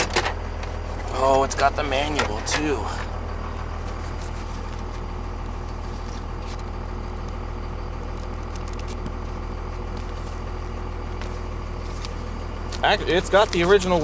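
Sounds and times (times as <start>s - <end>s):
diesel engine idling: 0.0s - 14.0s
paper rustling: 3.8s - 5.0s, 5.6s - 6.7s, 9.9s - 10.4s, 11.2s - 12.2s.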